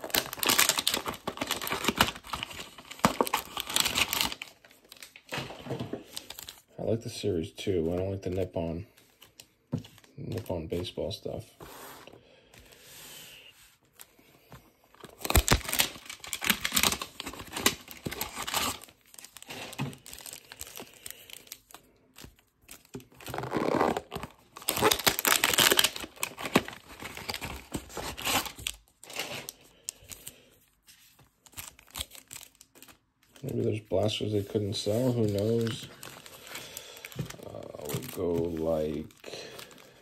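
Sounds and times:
cardboard boxes tearing: 0.0 - 4.5, 15.1 - 20.4, 23.1 - 29.5
wrapped packs crinkling: 0.0 - 6.7, 14.9 - 40.0.

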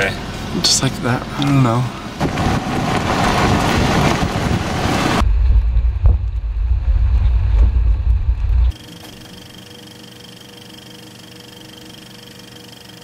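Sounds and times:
car wind and road noise: 0.0 - 8.7
wind buffeting on microphone: 2.2 - 8.7.

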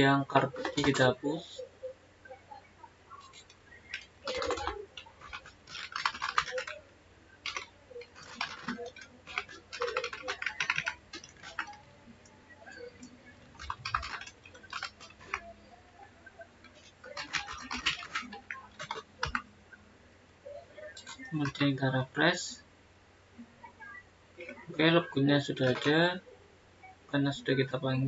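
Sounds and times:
computer keyboard typing: 0.2 - 1.2, 3.2 - 19.5, 20.8 - 21.9, 25.4 - 26.2.

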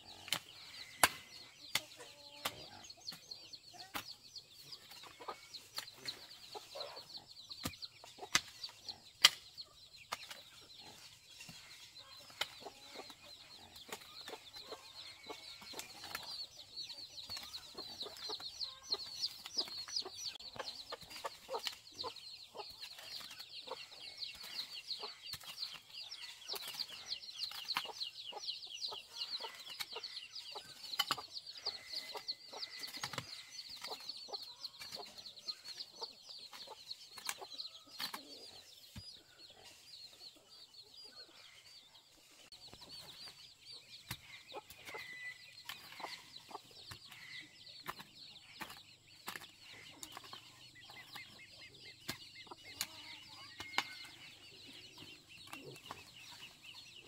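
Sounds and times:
chickens clucking: 0.0 - 57.0.

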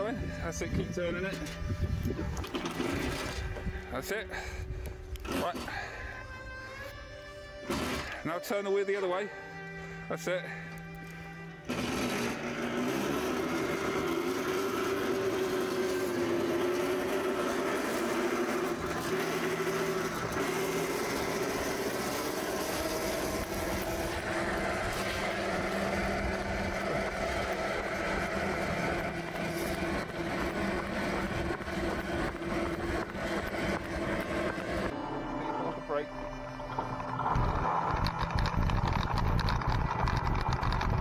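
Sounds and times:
electric motor whine: 0.0 - 3.9, 10.7 - 41.0
tyres rumbling on tarmac: 11.7 - 35.0.

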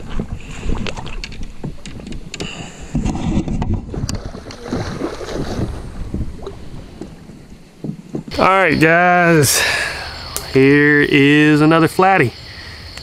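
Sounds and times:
wind on microphone: 0.0 - 8.8
water splashing and sloshing: 0.0 - 10.6.

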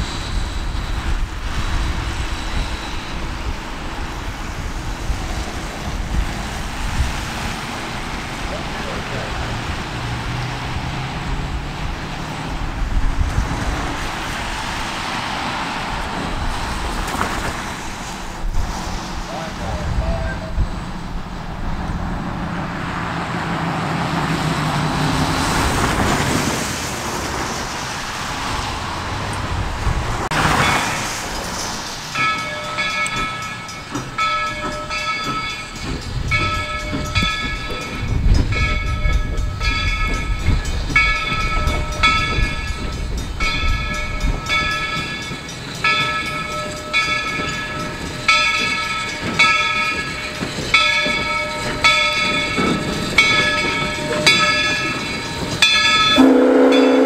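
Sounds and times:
train low rumble: 0.0 - 57.0
train rushing past: 0.0 - 57.0
railroad bell ringing: 30.3 - 57.0.

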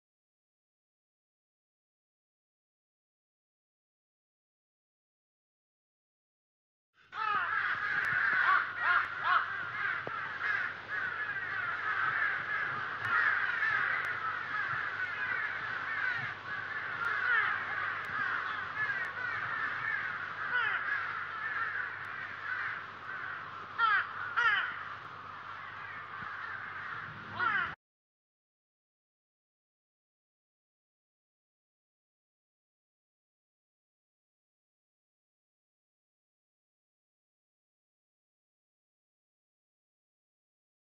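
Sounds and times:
flock of birds chirping: 7.0 - 27.8.

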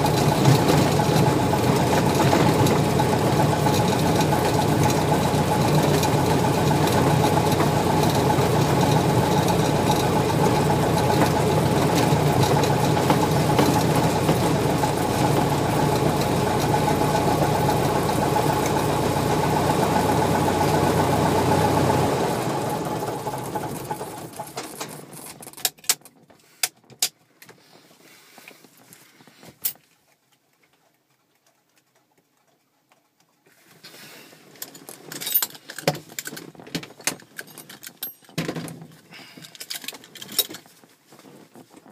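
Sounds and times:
light aircraft engine idling: 0.0 - 25.0.

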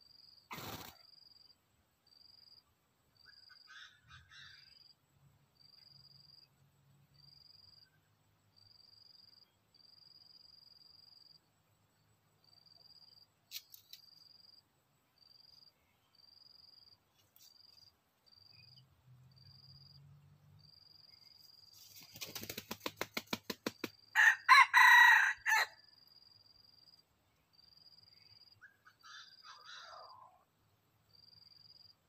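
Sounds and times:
rooster wing flaps: 0.5 - 1.0, 21.8 - 24.0
rooster crowing: 24.2 - 25.8.

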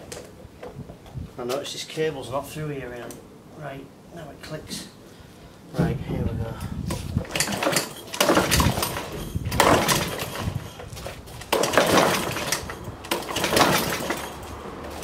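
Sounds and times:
recoil starter cord pulls: 6.9 - 14.5
engine cranking: 7.1 - 15.0.

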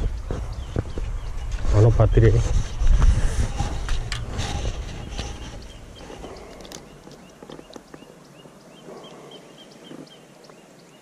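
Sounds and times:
handling rustle near microphone: 1.5 - 8.1.

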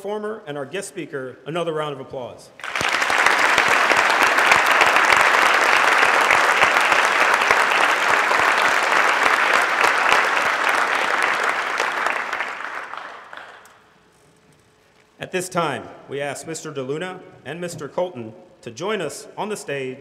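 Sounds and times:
audience applauding: 2.6 - 13.8.

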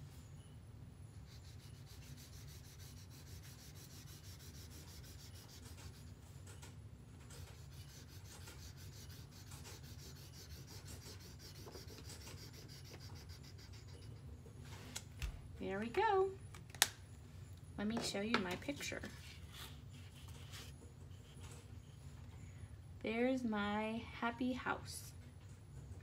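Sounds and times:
marker scribbling on paper: 1.3 - 6.2, 7.3 - 14.2.

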